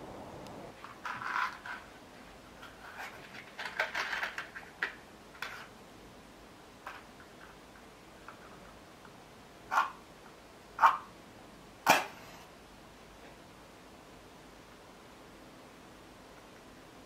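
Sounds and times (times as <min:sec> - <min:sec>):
small clicks and rustles: 0:00.4 - 0:05.8, 0:06.8 - 0:09.2.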